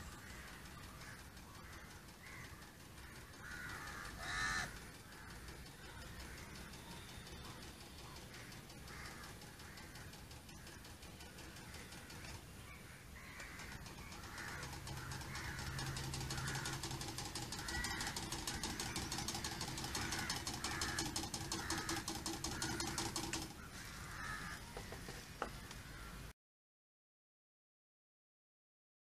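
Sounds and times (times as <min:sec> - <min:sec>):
birds calling: 0:00.0 - 0:26.3
electric motor buzzing: 0:03.0 - 0:12.5, 0:13.3 - 0:25.4.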